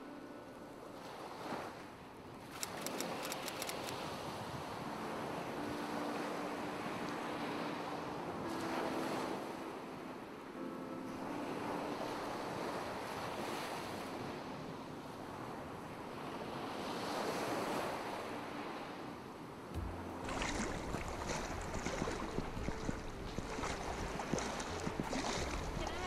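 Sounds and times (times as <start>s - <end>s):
waves washing on sandy shore: 1.0s - 10.4s, 11.2s - 26.0s
water splashing from wading: 19.8s - 26.0s
wind rumble on microphone: 19.8s - 26.0s.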